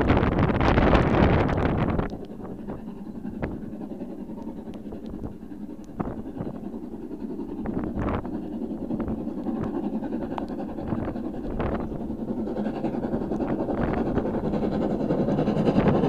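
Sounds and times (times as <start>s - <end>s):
distant steam locomotive exhaust: 0.0s - 16.0s
wind noise: 0.0s - 16.0s.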